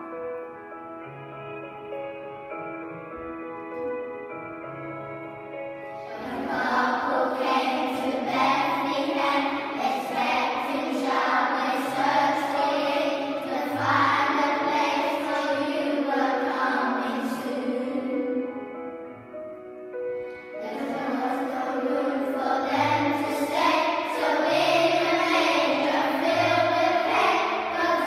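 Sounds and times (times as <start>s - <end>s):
instrumental accompaniment: 0.0s - 28.0s
children's choir singing: 5.8s - 19.1s, 20.2s - 28.0s.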